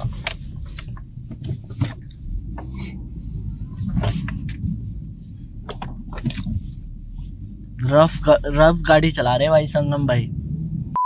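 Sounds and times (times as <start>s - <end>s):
interior knocks and clicks: 0.0s - 7.8s
car engine and tyres rumbling: 0.0s - 11.0s.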